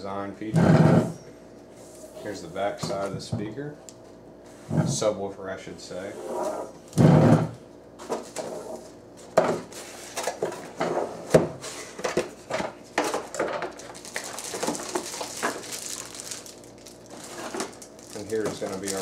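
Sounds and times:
plastic bag crinkling: 13.2 - 19.0.

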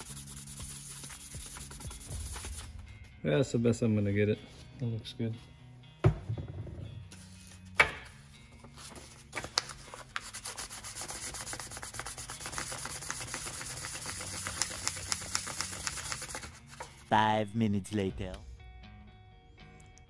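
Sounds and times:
sandpaper rubbing on metal: 0.0 - 2.6, 10.3 - 14.9.

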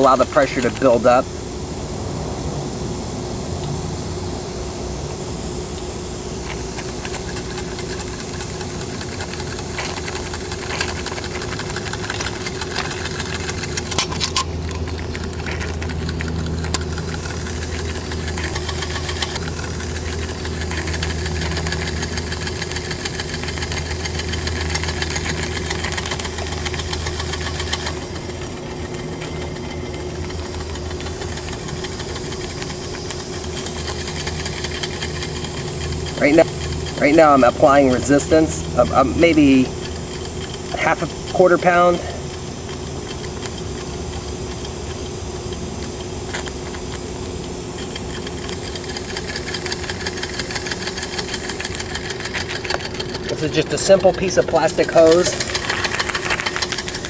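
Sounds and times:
small steam engine knocking: 6.4 - 57.0
steam hissing from leak: 29.8 - 57.0.

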